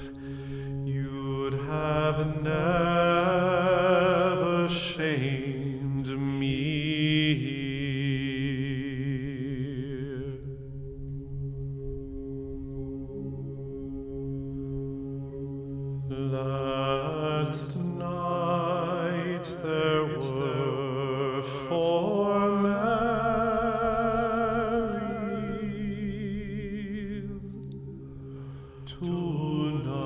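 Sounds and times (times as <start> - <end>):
steady low drone: 0.0 - 30.0
person singing with vibrato: 16.0 - 30.0.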